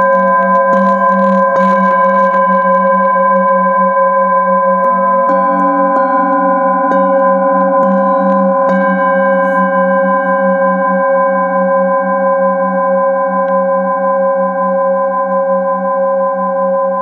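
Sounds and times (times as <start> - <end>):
singing bowl ringing: 0.0 - 17.0
mallet striking singing bowl: 5.2 - 10.3.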